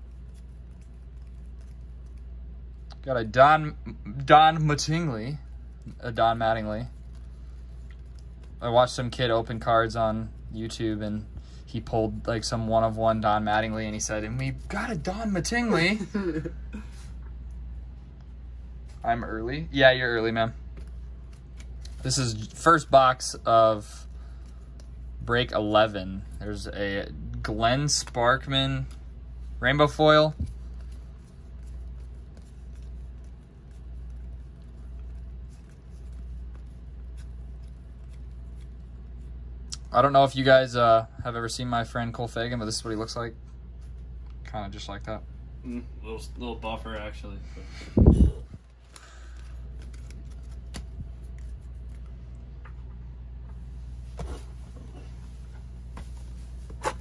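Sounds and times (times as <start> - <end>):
steady low hum: 0.0 - 57.0
trading cards flipped by hand: 20.7 - 22.8, 30.3 - 39.9, 48.6 - 52.8.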